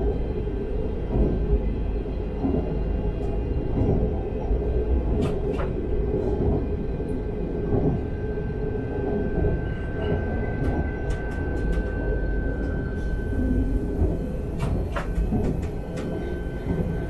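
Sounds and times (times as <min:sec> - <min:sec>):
train wheels rumbling on rail: 0:00.0 - 0:17.0
low hum: 0:06.0 - 0:17.0
thin steady whine: 0:08.2 - 0:17.0.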